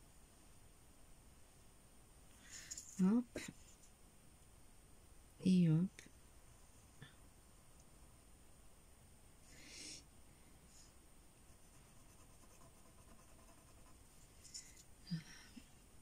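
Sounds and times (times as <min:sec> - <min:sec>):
pen scratching on card: 0:11.5 - 0:14.0.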